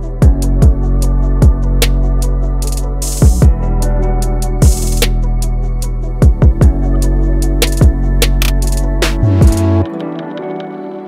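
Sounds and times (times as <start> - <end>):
electronic music with deep bass: 0.0 - 11.0
kick drum thump: 6.2 - 6.8.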